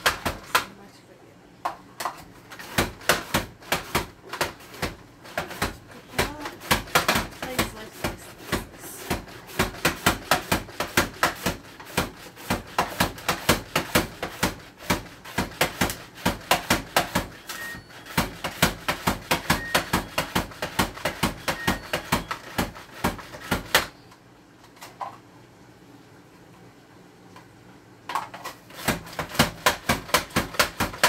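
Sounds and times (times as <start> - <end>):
onion slicer clacking: 2.1 - 23.9, 28.7 - 31.0.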